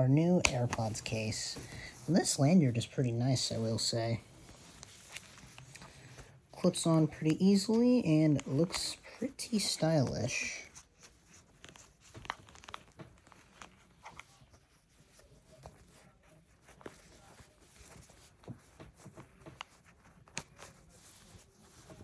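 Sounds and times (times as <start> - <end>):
soft handling rustling: 0.0 - 22.0.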